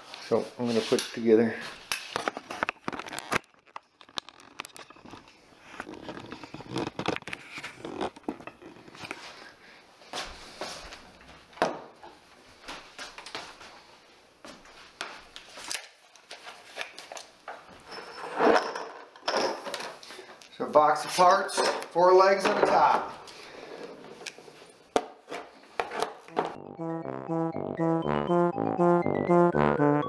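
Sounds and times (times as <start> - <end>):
cardboard tearing: 2.7 - 8.9
cardboard scraping and rustling: 4.5 - 9.0.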